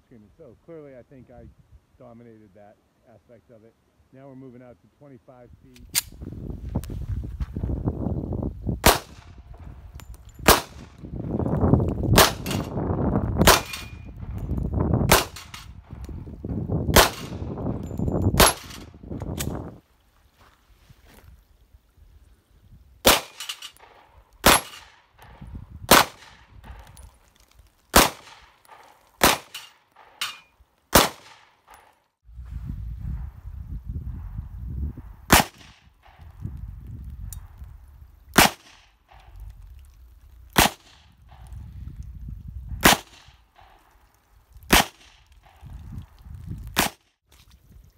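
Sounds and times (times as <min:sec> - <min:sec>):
handgun shots: 0:08.8 - 0:09.3, 0:10.4 - 0:10.9, 0:13.4 - 0:14.0, 0:15.1 - 0:15.7, 0:16.9 - 0:17.4, 0:18.4 - 0:19.6, 0:23.0 - 0:26.9, 0:27.9 - 0:31.9, 0:35.3 - 0:36.2, 0:38.4 - 0:39.3
metallic clang of steel plates: 0:23.3 - 0:23.9, 0:29.5 - 0:30.6.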